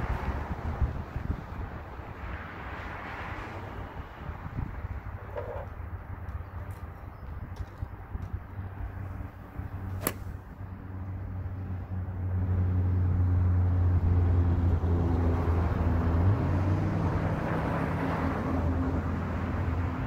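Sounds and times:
golf club striking ball: 9.8 - 10.5.

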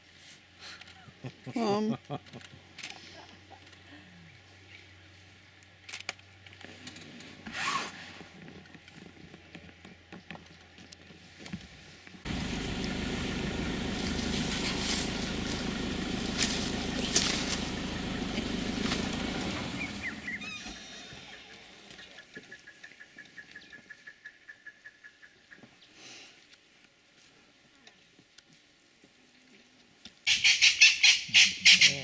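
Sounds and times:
vehicle engine rumbling: 12.1 - 22.3.

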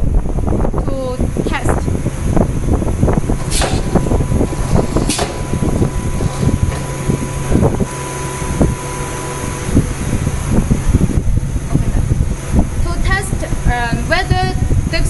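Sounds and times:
machine hum: 0.0 - 15.0
air hisses: 3.3 - 8.0
pneumatic machine clacks and knocks: 3.4 - 5.6.

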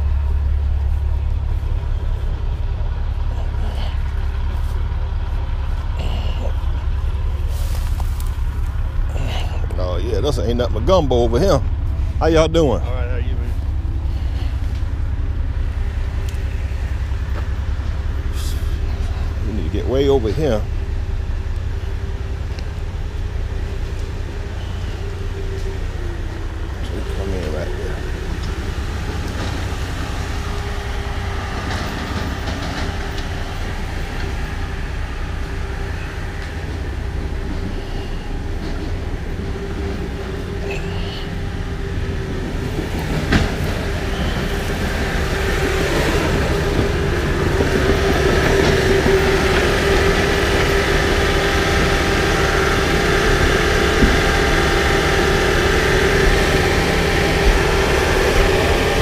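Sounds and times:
heavy diesel engine under load: 0.0 - 59.0.

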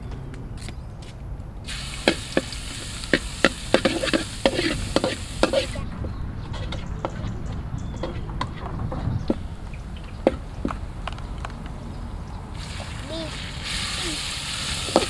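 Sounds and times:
food sizzling in a pan: 1.7 - 5.8, 12.6 - 15.0
metal spatula scraping a pan: 2.1 - 5.8.

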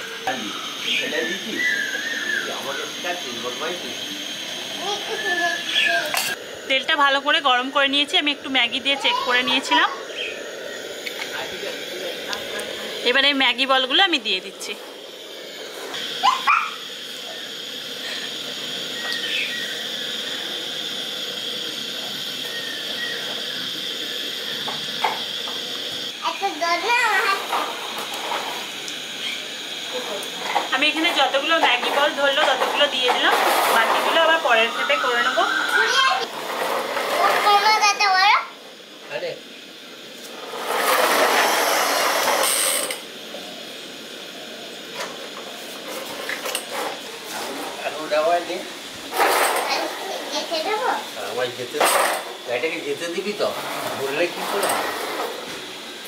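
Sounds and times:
hot oil sizzling: 0.0 - 56.0
toy car gears whirring and rattling: 35.7 - 38.1, 40.4 - 43.0, 49.1 - 50.8, 53.5 - 55.4.

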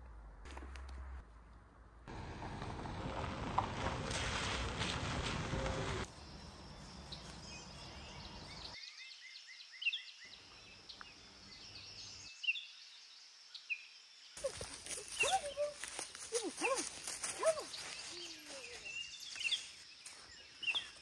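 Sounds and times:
tyres rolling over gravel: 2.1 - 6.1.

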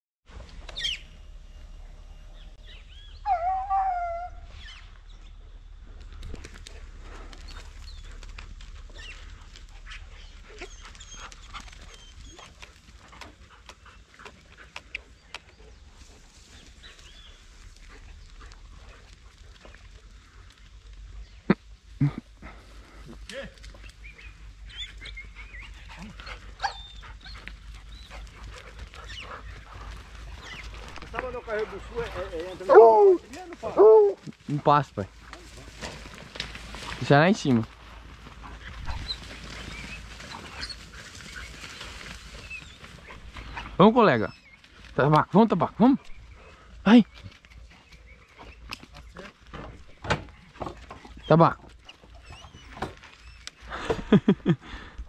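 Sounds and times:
dogs yelping and whining: 0.3 - 5.5, 6.4 - 14.0, 23.8 - 31.1, 31.7 - 34.4, 38.4 - 44.9, 50.6 - 53.7
dog howling: 2.9 - 4.7, 32.0 - 34.3.

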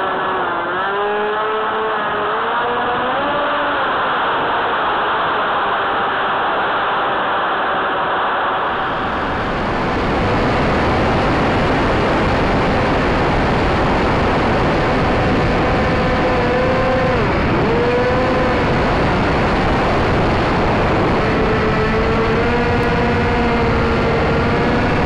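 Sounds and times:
electric motor and propeller whine: 0.0 - 25.0
wind rushing over microphone: 8.4 - 25.0.

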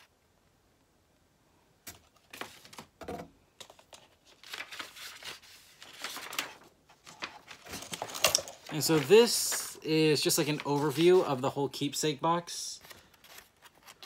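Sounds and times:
paper rustling and crinkling: 1.9 - 2.9, 3.6 - 11.6, 12.8 - 14.0.

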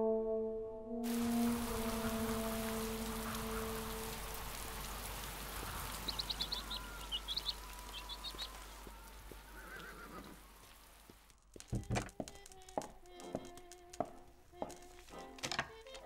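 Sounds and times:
steady rain hiss: 1.0 - 15.2
high bird chirps: 1.5 - 10.3.

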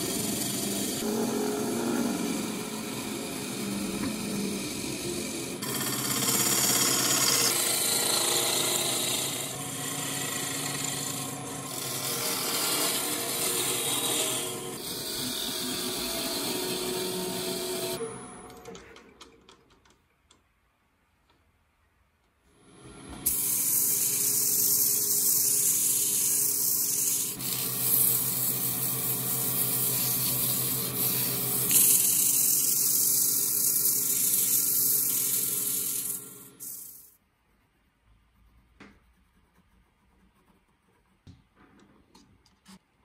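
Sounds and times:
lathe motor hum: 0.0 - 18.0
sandpaper hissing on lathe: 2.1 - 18.0, 23.2 - 37.2.

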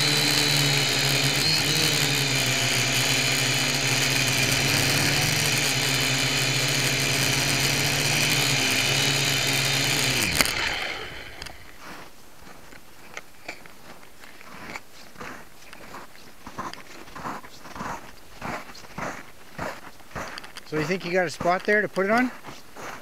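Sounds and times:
quadcopter motors whining: 0.0 - 12.1, 14.6 - 23.0
faint crunches and ticks: 11.3 - 23.0.

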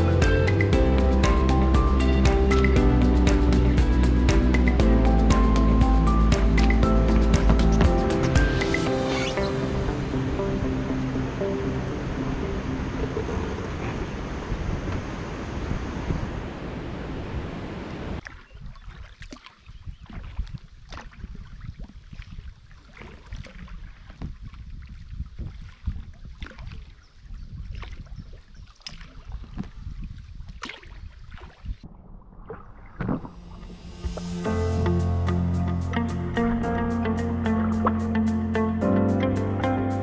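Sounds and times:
steady rushing noise: 0.0 - 18.2, 31.8 - 36.3
paddle splashing in water: 6.3 - 9.5, 18.2 - 34.4.

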